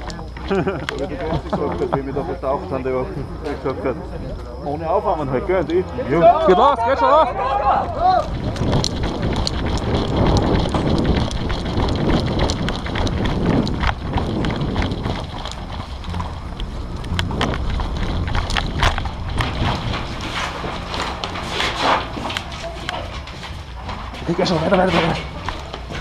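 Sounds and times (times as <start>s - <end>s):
wind on microphone: 7.3s - 24.2s
sharp clicks and knocks: 8.2s - 26.0s.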